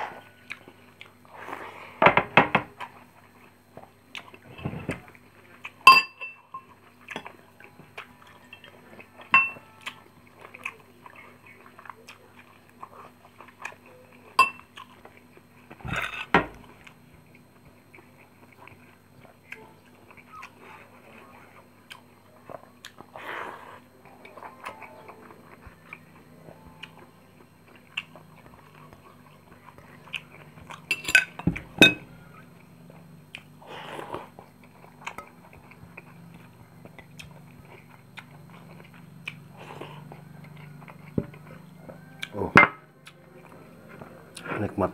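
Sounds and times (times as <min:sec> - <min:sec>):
chewing and mouth noises: 0:00.2 - 0:01.5, 0:02.8 - 0:05.8, 0:06.7 - 0:30.9, 0:32.4 - 0:44.8
metal spoons clinking on ceramic: 0:05.9 - 0:06.7, 0:09.3 - 0:09.6, 0:14.4 - 0:14.6, 0:30.9 - 0:32.0.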